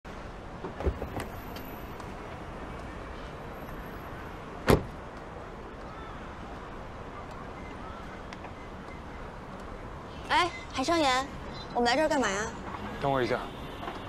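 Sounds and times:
street traffic hum: 0.0 - 14.0
car door shutting hard: 4.6 - 5.0.

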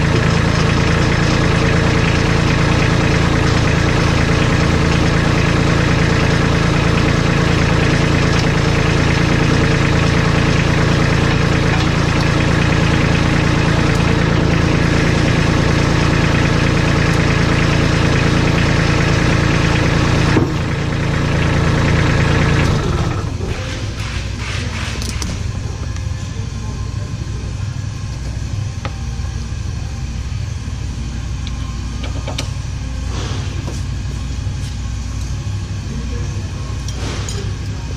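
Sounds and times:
tractor diesel engine idling: 0.0 - 37.9.

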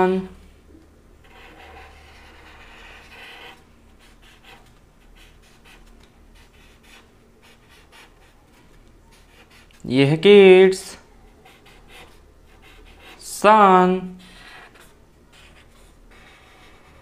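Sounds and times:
marker pen scratching on paper: 1.2 - 9.8, 11.3 - 13.3, 14.2 - 17.0.

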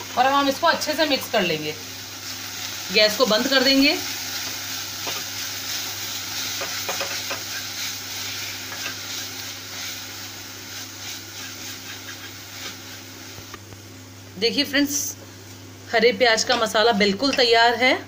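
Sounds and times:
onions sizzling in ghee: 0.0 - 18.0.

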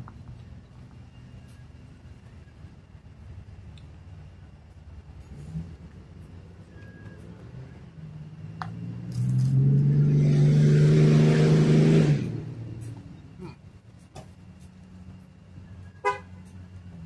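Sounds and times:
vehicle engine passing: 4.8 - 13.6.

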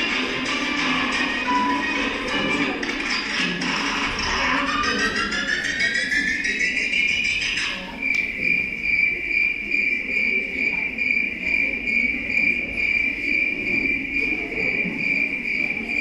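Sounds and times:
music: 0.0 - 7.8.

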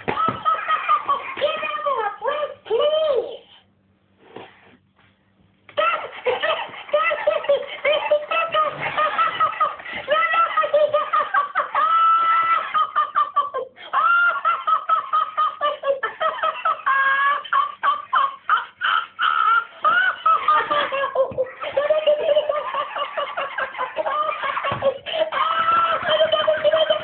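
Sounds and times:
toy laughing electronically: 5.7 - 27.0.

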